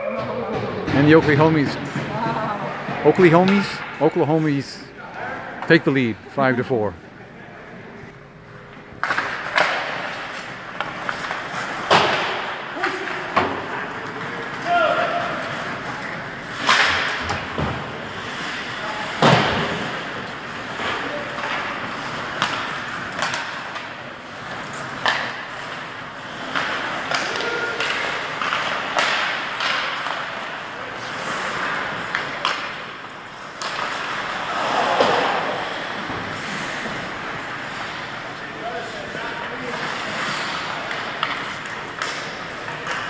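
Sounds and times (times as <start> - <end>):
sticks and puck hitting boards: 8.9 - 43.0
skates hissing on ice: 34.0 - 38.2, 39.6 - 40.9.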